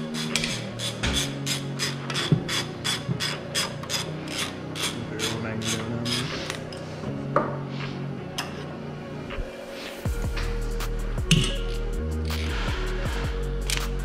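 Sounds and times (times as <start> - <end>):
hand ratchet clicking: 0.1 - 6.6.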